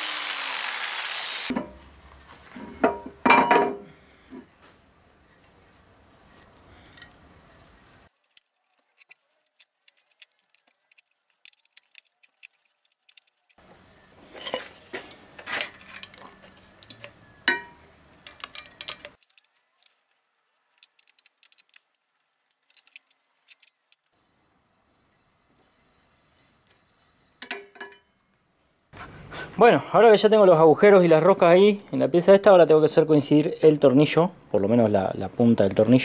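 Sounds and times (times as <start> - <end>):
steel parts clinking: 6.4 - 13.6, 14.4 - 28.4.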